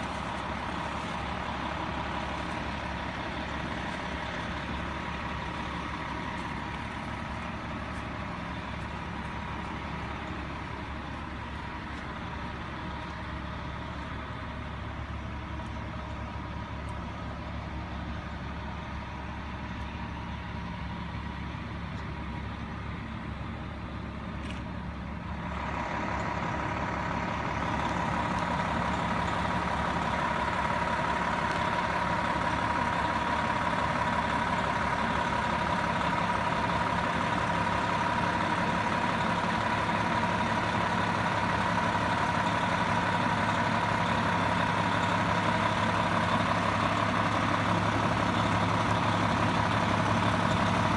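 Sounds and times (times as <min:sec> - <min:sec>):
diesel engine idling: 0:00.0 - 0:50.9.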